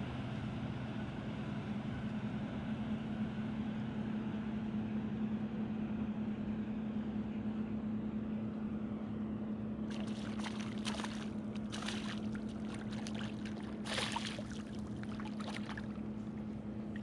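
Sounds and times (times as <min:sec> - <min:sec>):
steady low hum: 0:05.3 - 0:17.0
fish splashing in water: 0:09.9 - 0:17.0.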